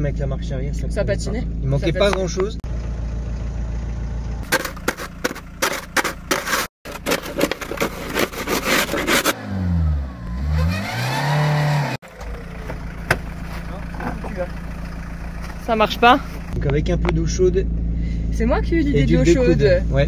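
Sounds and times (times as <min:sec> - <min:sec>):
motorhome engine idling and revving: 0:00.0 - 0:20.0
shovel scraping snow and ice: 0:04.4 - 0:09.6.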